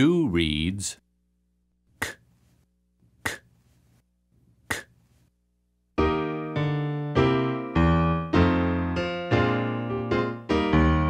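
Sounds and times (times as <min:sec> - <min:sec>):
person saying a letter sound: 0:00.0 - 0:01.0
electric piano chords: 0:06.0 - 0:11.0.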